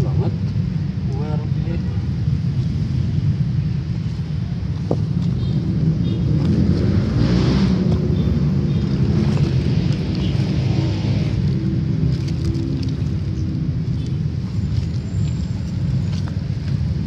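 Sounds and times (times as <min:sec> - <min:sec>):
hands digging in wet mud: 0:09.1 - 0:17.0.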